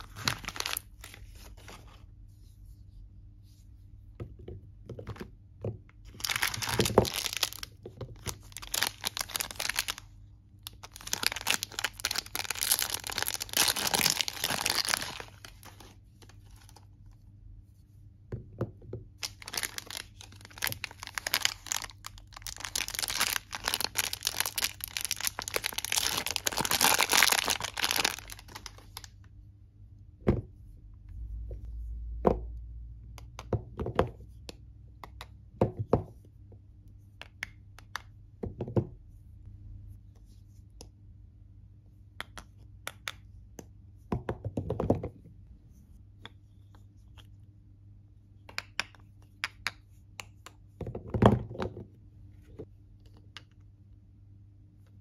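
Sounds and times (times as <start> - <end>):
plastic wrapper crinkling and tearing: 0.0 - 1.7, 6.1 - 16.8, 19.2 - 29.1.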